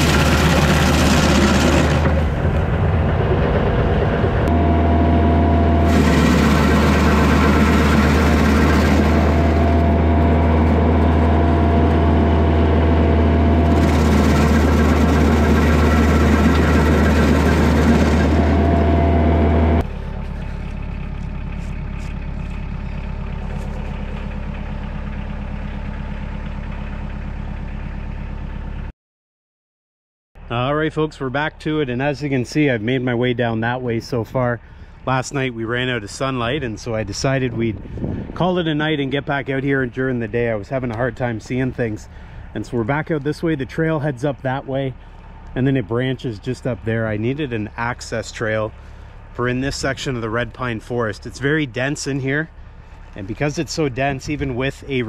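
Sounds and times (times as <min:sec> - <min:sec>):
stump grinder grinding: 0:00.0 - 0:26.8
tractor diesel engine running: 0:00.0 - 0:28.9, 0:30.4 - 0:55.0.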